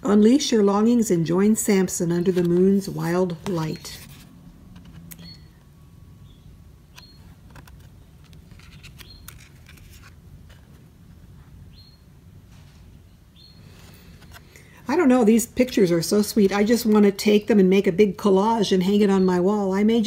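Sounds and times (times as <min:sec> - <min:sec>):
cards sliding and tapping: 0:02.2 - 0:05.1, 0:07.4 - 0:10.8.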